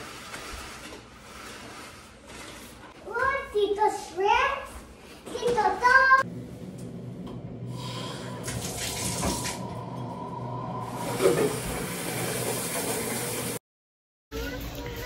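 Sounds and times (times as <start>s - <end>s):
shower water spraying: 8.4s - 9.7s, 10.8s - 13.6s.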